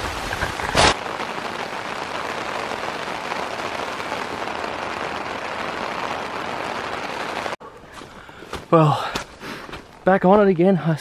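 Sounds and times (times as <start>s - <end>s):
rain falling on a tent: 0.0s - 7.6s.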